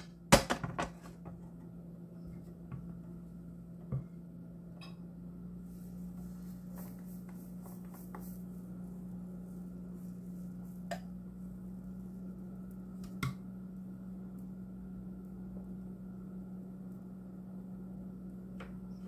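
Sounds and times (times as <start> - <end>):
steady low hum: 0.0 - 19.0
batter crackling on a griddle: 5.5 - 19.0.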